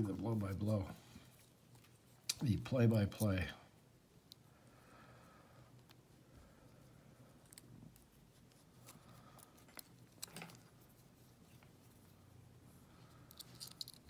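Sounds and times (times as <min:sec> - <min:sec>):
lock pick clicking and scraping: 0:13.3 - 0:14.0.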